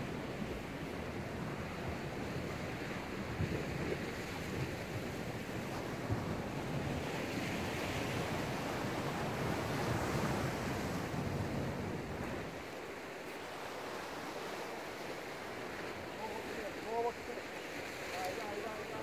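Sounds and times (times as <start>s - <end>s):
sea surf on rocky shore: 0.0s - 19.0s.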